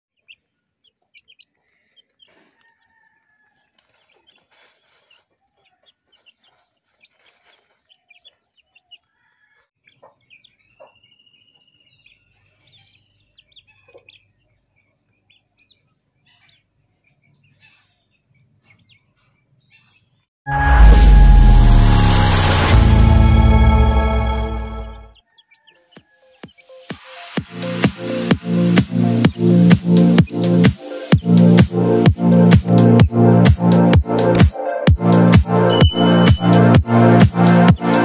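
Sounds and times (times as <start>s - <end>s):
chicks peeping and clucking: 0.1s - 20.2s, 25.2s - 26.7s.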